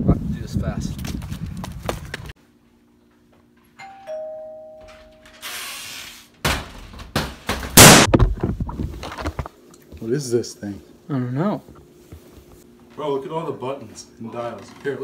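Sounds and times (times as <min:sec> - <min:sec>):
two-note doorbell chime: 0:03.8 - 0:05.4
burst of hiss: 0:05.4 - 0:06.3
loud thumps: 0:06.4 - 0:09.4.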